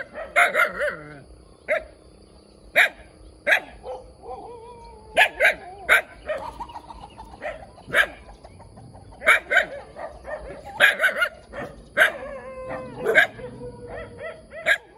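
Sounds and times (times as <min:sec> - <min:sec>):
puppy yapping: 0:05.2 - 0:06.8, 0:07.4 - 0:08.2, 0:09.2 - 0:14.9.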